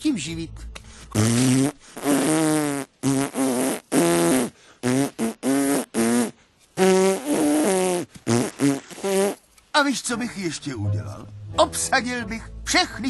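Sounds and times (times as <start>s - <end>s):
buzzy mouth-made tune: 1.1s - 9.4s.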